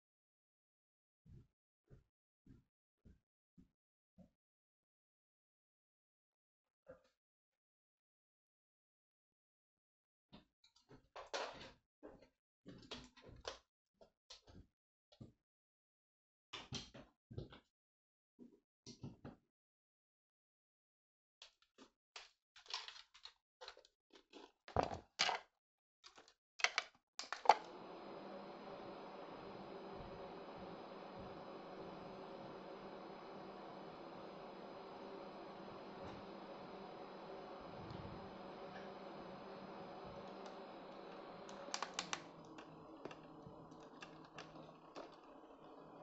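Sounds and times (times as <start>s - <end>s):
electric fan humming: 27.4s - 46.0s.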